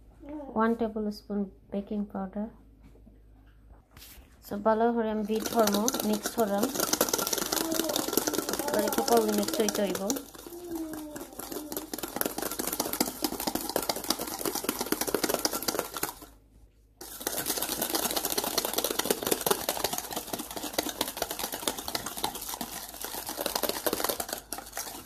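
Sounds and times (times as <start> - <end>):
whisk beating in metal bowl: 5.2 - 16.4, 17.0 - 25.0.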